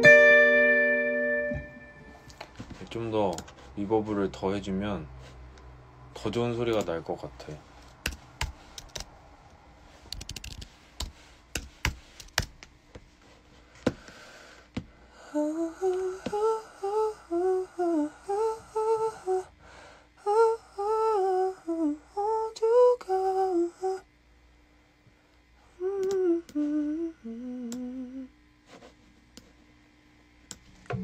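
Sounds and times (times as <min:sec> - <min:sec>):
person humming a melody: 0:15.2 - 0:19.5, 0:20.2 - 0:24.0, 0:25.7 - 0:28.4.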